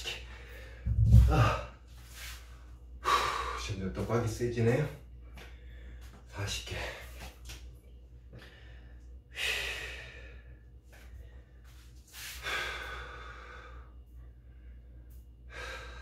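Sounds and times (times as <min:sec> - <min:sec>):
man breathing hard: 0:00.0 - 0:03.7, 0:05.5 - 0:06.2, 0:08.3 - 0:16.0.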